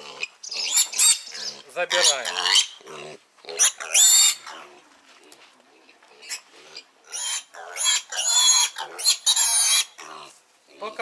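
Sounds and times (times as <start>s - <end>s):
piglet squealing: 0.4s - 2.8s, 3.6s - 4.6s, 7.1s - 10.1s.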